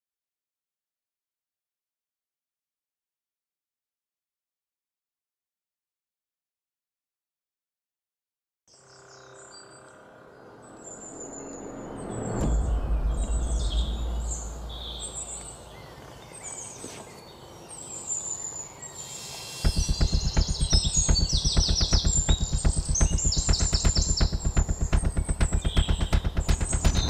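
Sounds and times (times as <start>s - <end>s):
birds chirping: 8.7s - 27.0s
low rumbling drone: 9.5s - 15.9s, 19.5s - 27.0s
pulsing horror score beat: 11.7s - 15.4s, 19.5s - 27.0s.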